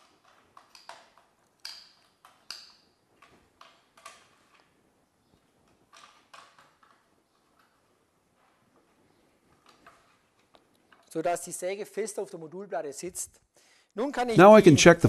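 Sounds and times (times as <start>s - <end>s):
clamping jaws clicking and tapping: 0.0s - 4.8s.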